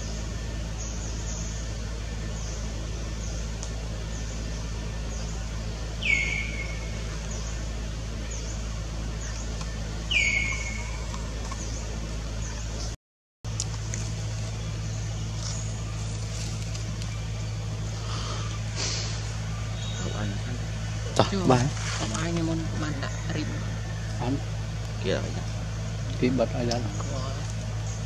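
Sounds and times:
faint high chirps: 0.0 - 12.8, 14.4 - 20.6
steady low hum: 0.0 - 28.0
whistled animal calls: 6.0 - 7.1, 10.1 - 11.3.

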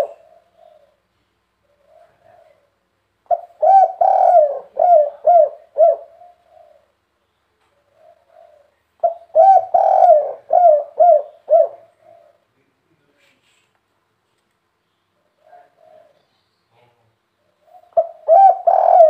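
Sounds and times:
dove cooing: 0.0 - 7.0, 7.7 - 12.5, 15.2 - 16.3, 17.4 - 19.0.

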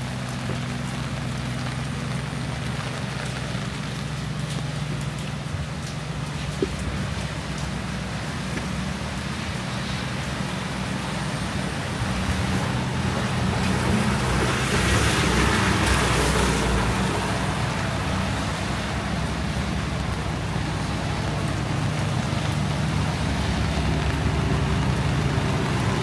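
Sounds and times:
road traffic rumble: 0.0 - 26.0
tyres hissing on wet road: 0.0 - 26.0.

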